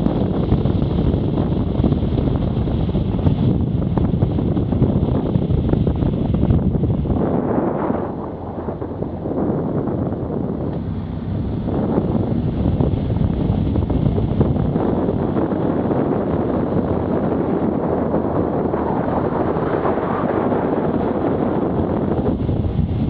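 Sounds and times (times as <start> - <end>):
motorcycle engine running: 0.0 - 23.0
wind buffeting microphone: 0.0 - 23.0.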